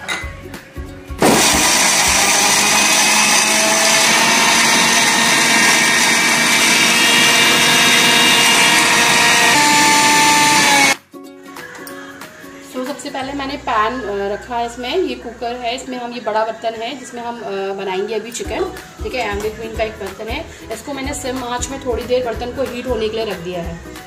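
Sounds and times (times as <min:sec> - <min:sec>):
mixer grinder running: 0:01.2 - 0:11.0.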